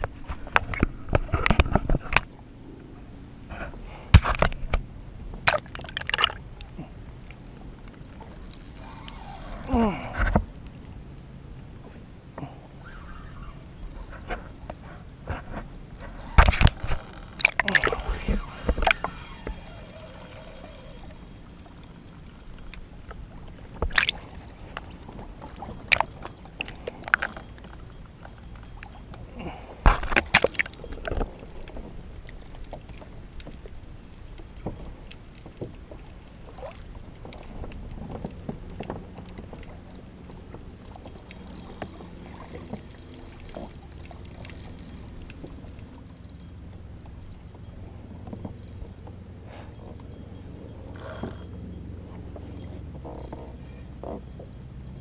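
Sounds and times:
water sloshing and splashing: 0.0 - 2.5, 3.5 - 11.0, 11.7 - 55.0
sharp splashes or knocks: 5.4 - 6.4, 15.3 - 19.7, 23.8 - 24.2.

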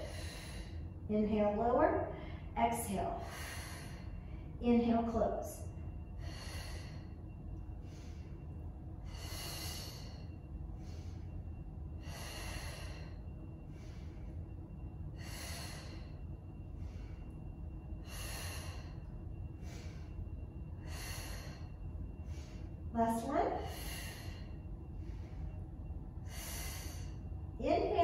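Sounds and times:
low steady hum: 0.0 - 28.0
woman breathing: 0.0 - 28.0.

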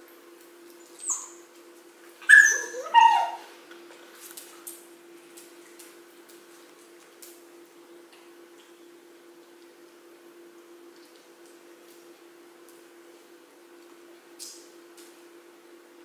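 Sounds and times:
dog whining: 1.0 - 1.4, 2.2 - 3.5.

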